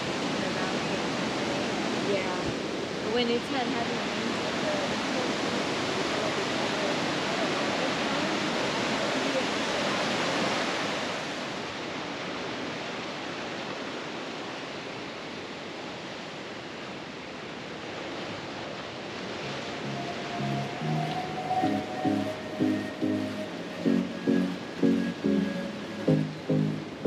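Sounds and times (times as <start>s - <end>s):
stream water over rocks: 0.0s - 15.3s
ocean surf on boulders: 0.0s - 27.0s.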